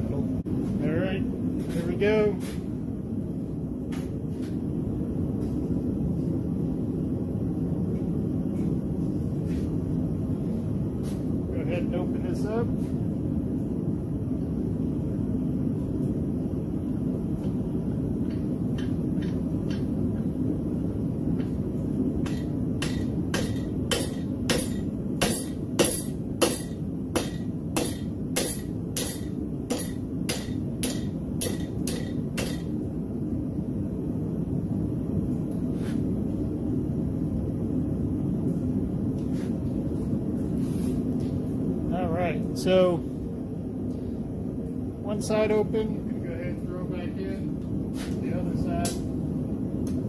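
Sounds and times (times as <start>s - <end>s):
hammer striking hot metal: 22.2s - 32.8s.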